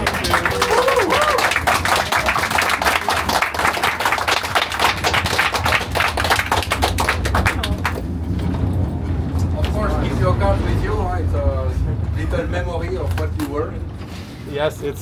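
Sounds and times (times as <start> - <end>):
people applauding: 0.0 - 8.1.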